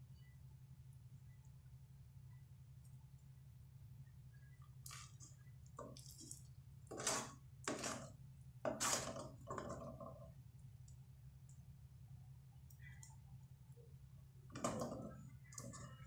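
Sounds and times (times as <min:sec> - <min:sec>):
metal spoon stirring sticky syrup: 0:04.9 - 0:10.2.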